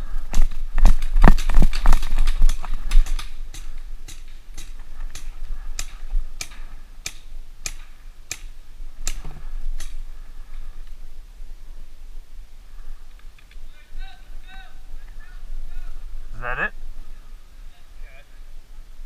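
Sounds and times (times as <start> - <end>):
paintball markers firing: 0.8 - 10.0.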